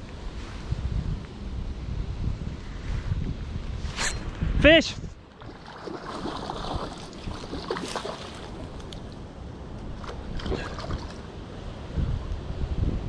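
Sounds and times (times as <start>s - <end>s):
wind rumbling on microphone: 0.0s - 13.0s
fish splashing at water surface: 5.4s - 9.2s, 10.0s - 11.2s.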